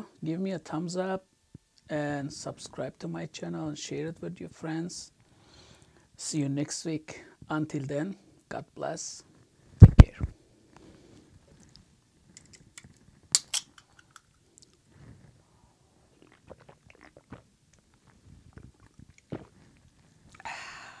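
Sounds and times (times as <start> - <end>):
man chewing: 16.1 - 20.4.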